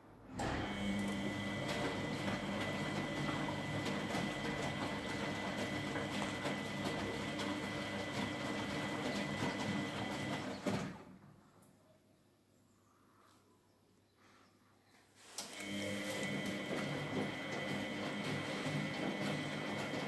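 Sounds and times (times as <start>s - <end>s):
washing machine motor whine: 0.3s - 11.0s, 15.4s - 20.0s
wet laundry sloshing in drum: 0.7s - 10.9s, 15.9s - 20.0s.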